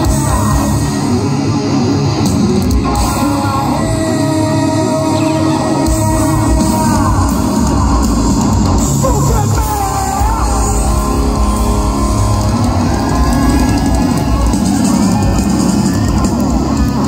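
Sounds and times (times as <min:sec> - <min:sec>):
live rock band playing: 0:00.0 - 0:17.0
man singing: 0:02.8 - 0:12.8.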